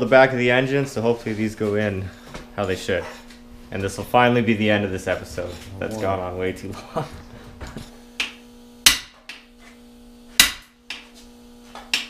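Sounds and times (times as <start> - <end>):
faint steady hum: 0.0 - 12.0
hammer tapping metal tool: 8.2 - 9.5, 10.4 - 11.2, 11.8 - 12.0.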